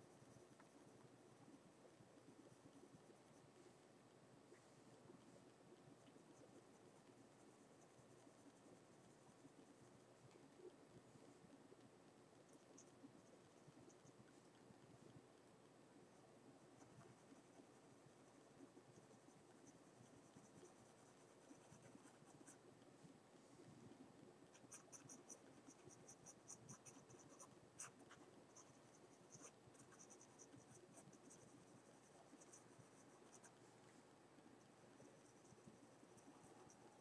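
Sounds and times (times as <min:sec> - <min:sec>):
pencil scratching on paper: 0:24.5 - 0:33.6.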